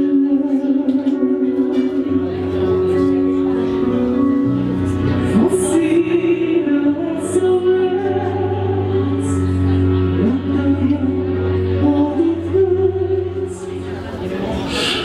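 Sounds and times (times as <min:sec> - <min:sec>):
man singing into microphone: 0:00.0 - 0:03.0, 0:05.3 - 0:09.5
instrumental accompaniment: 0:00.0 - 0:15.0.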